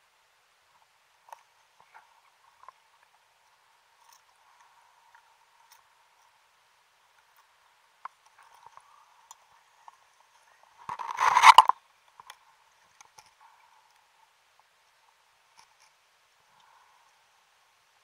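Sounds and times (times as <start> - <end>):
faint underwater clicks: 7.1 - 17.2.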